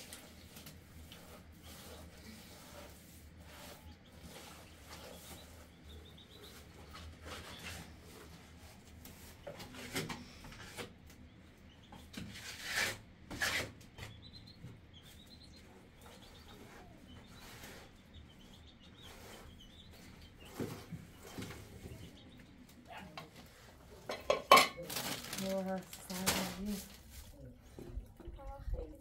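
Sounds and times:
small bird chirping: 4.1s - 6.7s, 14.0s - 23.0s
rustling: 24.7s - 27.5s.

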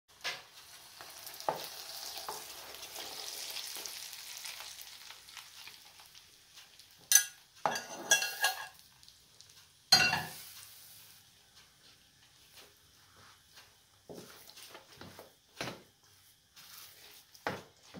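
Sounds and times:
spoon stirring grain in bowl: 7.0s - 8.8s, 16.2s - 17.9s
spoon knocking against bowl: 9.9s - 10.4s.

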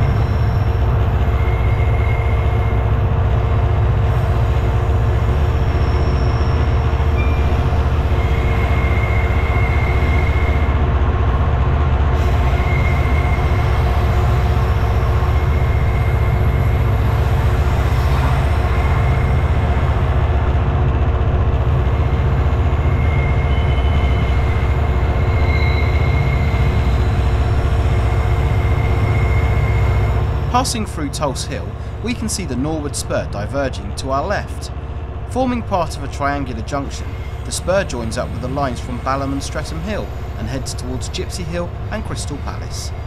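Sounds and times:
wheel squeals: 0.0s - 2.8s, 5.2s - 10.7s, 22.8s - 30.3s
diesel locomotive rumbling: 0.0s - 43.0s.

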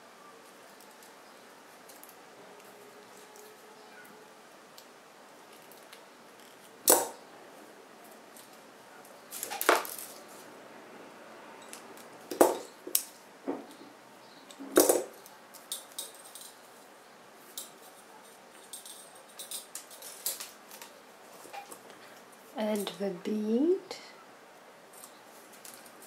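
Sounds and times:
metal tools clicking and tapping: 14.5s - 16.6s, 17.6s - 20.9s.

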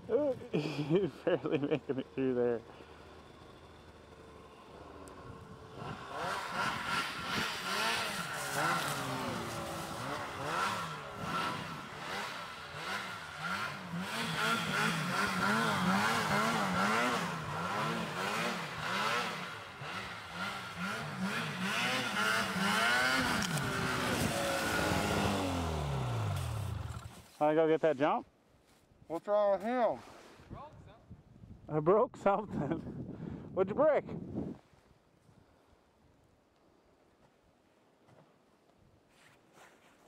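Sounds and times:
snowmobile engine revving: 0.4s - 27.2s.

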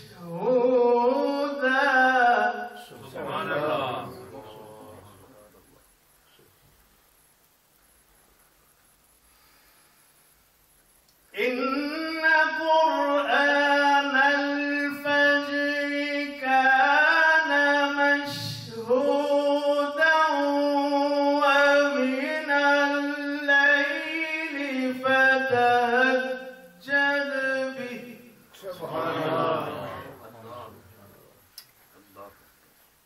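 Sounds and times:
man chanting into a microphone: 0.0s - 5.7s, 11.3s - 31.4s.

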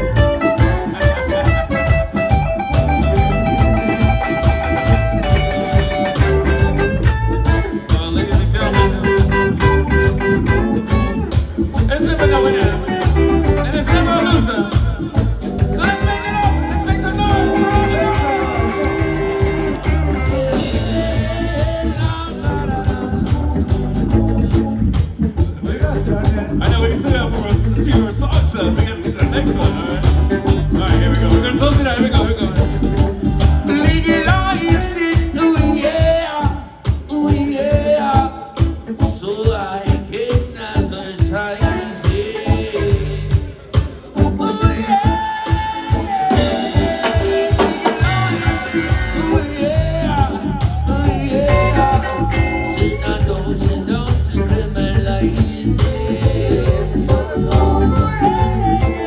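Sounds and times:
drum kit: 0.0s - 59.0s
electric and acoustic guitars: 0.0s - 59.0s
people singing: 17.1s - 32.3s, 33.6s - 59.0s.

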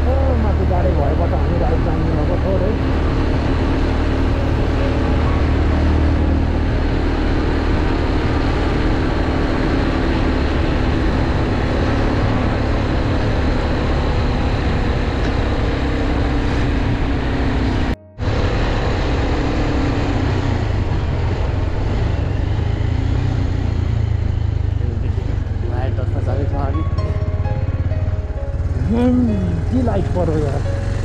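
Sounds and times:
motorcycle engine running: 0.0s - 31.0s
road rush: 0.0s - 31.0s
wind noise: 2.8s - 24.7s.

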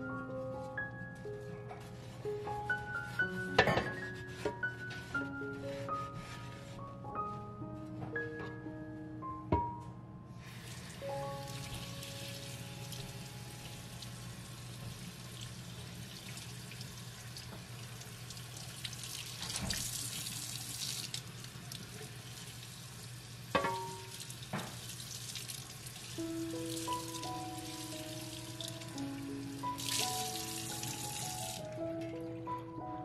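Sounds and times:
faucet water splashing on metal: 15.3s - 29.0s, 29.6s - 31.7s.

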